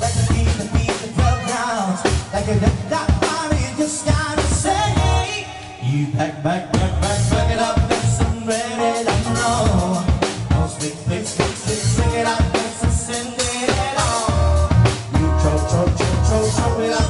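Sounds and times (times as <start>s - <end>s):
live band dance music: 0.0s - 17.0s
person singing: 0.0s - 17.0s
electric keyboard: 3.8s - 5.6s, 7.0s - 17.0s.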